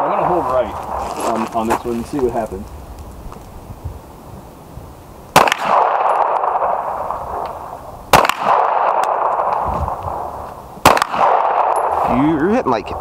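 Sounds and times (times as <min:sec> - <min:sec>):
pistol shots: 0:05.3 - 0:12.0.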